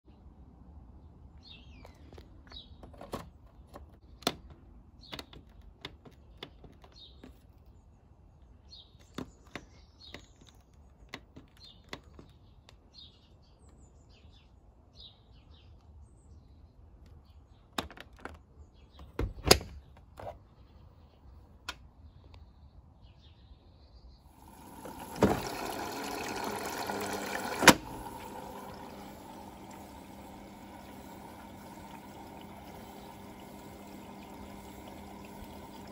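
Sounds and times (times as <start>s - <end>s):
small birds chirping: 1.0s - 25.2s, 27.9s - 35.9s
water rushing into drum: 24.3s - 35.9s
washing machine control clicks: 24.5s - 35.9s.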